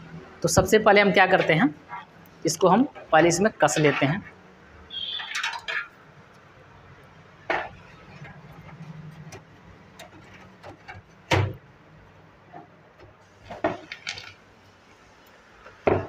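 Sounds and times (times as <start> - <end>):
metal knocks and clatter: 5.2 - 6.0, 7.5 - 11.6.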